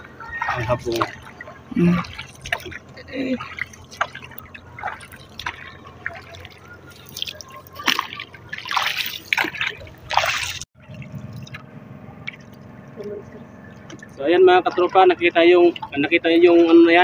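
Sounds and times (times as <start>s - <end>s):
water splashing against boat: 0.0s - 17.0s.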